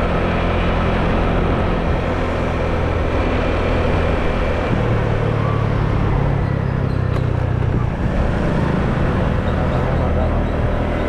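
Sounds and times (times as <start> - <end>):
road and wind noise: 0.0 - 11.0
scooter engine running: 0.0 - 11.0.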